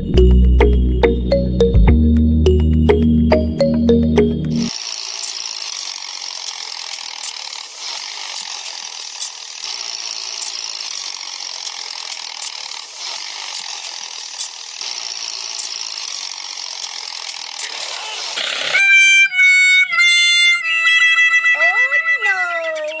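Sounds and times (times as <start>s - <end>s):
toy motor whirring: 4.7s - 23.0s.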